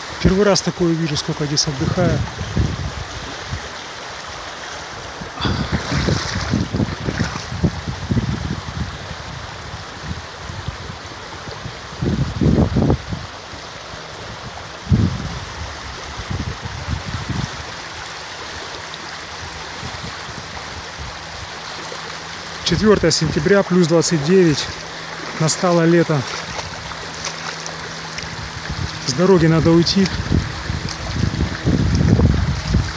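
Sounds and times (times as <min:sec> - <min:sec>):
river rushing over stones: 0:00.0 - 0:32.9
low rumbles on microphone: 0:05.3 - 0:10.9, 0:26.2 - 0:32.9.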